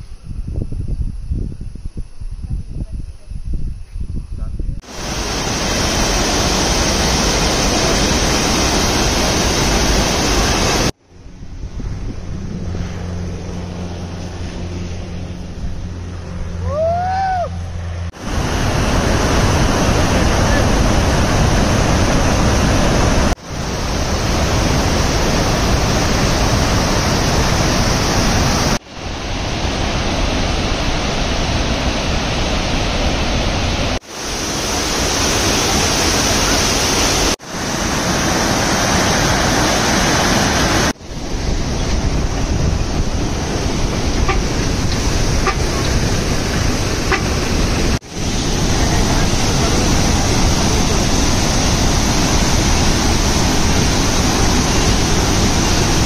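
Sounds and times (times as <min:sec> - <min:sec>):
waterfall rushing over rock: 0:04.8 - 0:11.0, 0:18.1 - 0:41.0, 0:43.0 - 0:56.0.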